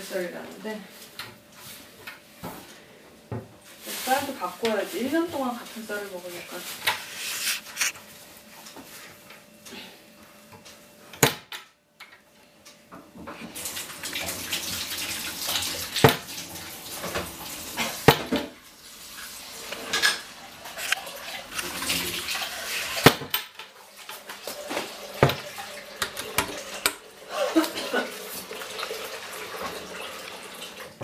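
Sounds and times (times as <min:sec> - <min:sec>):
tap water running into sink: 0:13.4 - 0:31.0.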